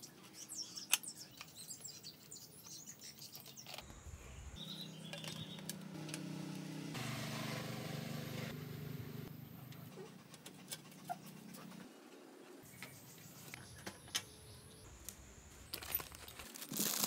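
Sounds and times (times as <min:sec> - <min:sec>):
bird chirp: 0:00.0 - 0:06.0, 0:12.6 - 0:15.0
steady low hum: 0:03.8 - 0:12.0.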